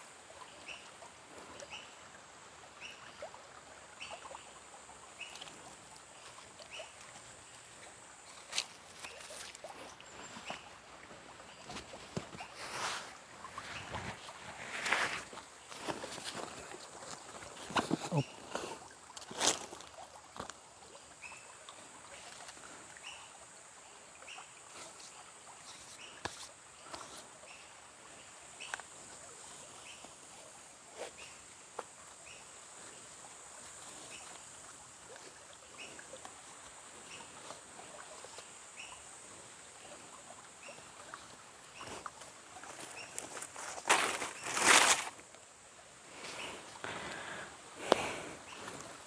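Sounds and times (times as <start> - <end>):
steady high hiss: 3.9 - 49.0
backpack rustling on leaves: 11.4 - 20.0, 41.8 - 45.3.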